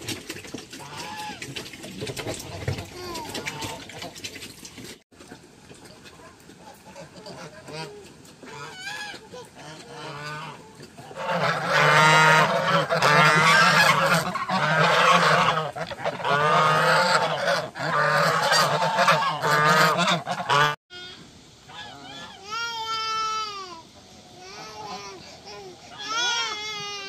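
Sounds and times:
waterfowl calling: 6.6 - 20.8, 21.6 - 22.5.

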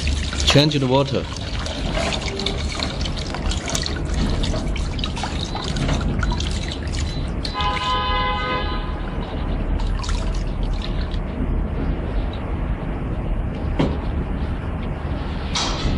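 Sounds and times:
water splashing into plastic jug: 0.0 - 8.6, 9.7 - 11.3
steady horn-like tone: 7.5 - 9.8.

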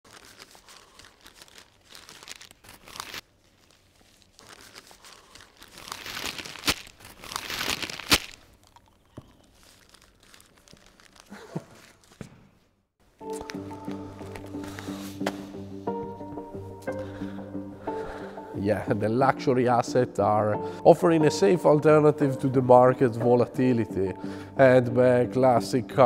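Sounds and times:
paper crinkling and rustling: 0.0 - 12.3.

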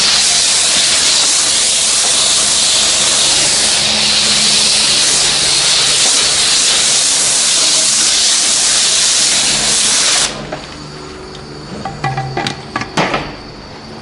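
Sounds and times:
pressure washer spraying hiss: 0.0 - 10.6.

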